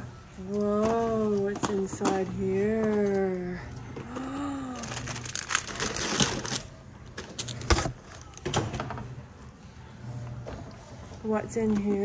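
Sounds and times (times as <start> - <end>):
packaging crinkling: 4.4 - 8.4.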